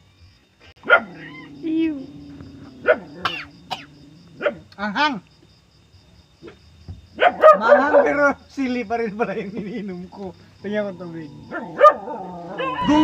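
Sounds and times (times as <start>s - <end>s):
dogs barking: 0.8s - 4.8s, 7.2s - 8.4s, 11.3s - 13.0s.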